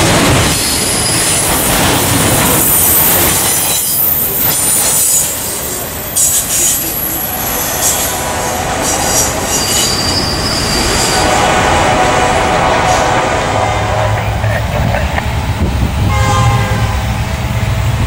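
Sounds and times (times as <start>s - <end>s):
freight train wheels rumbling: 0.0s - 18.0s
high-pitched wheel squeal: 8.8s - 11.3s.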